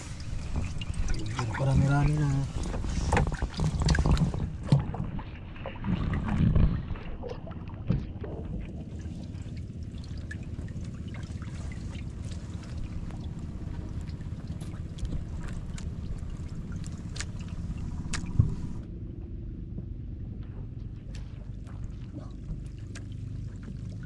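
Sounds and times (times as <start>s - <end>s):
water trickling and dripping: 0.0s - 4.4s, 7.2s - 18.8s, 21.1s - 24.0s
wind rumble on microphone: 0.0s - 24.0s.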